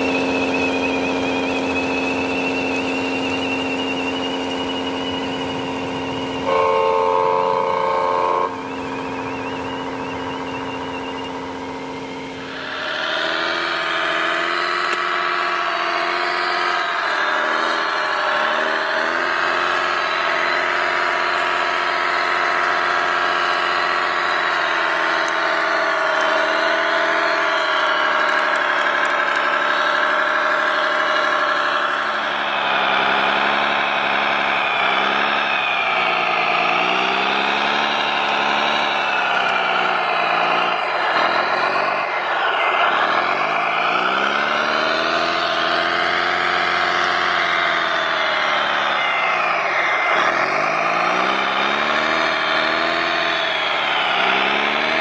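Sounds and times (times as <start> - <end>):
model bulldozer engine drone: 0.0 - 55.0.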